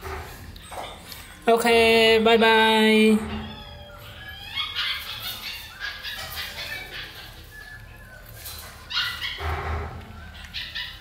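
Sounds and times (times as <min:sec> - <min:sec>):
puppies chewing and smacking: 0:03.4 - 0:11.0.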